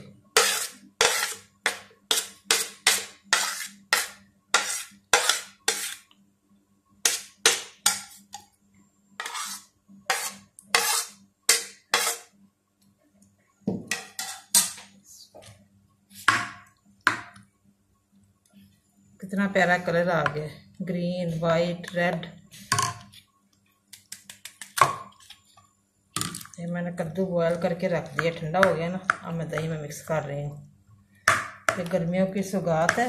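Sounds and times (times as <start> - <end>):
scraping on ceramic plate: 0.4 - 1.5, 2.1 - 6.0, 9.2 - 12.3.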